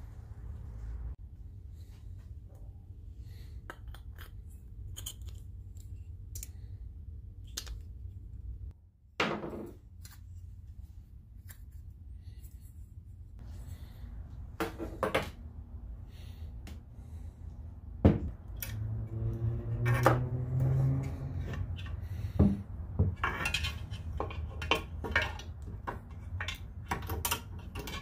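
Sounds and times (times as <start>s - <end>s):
steady low hum: 9.9s - 26.6s
metal parts clicking and clinking: 23.1s - 28.0s.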